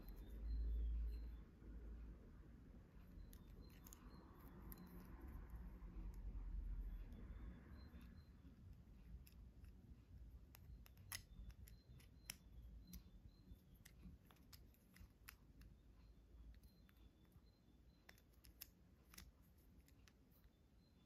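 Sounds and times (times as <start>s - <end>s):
small plastic parts clicking: 10.4s - 15.8s, 18.0s - 20.4s.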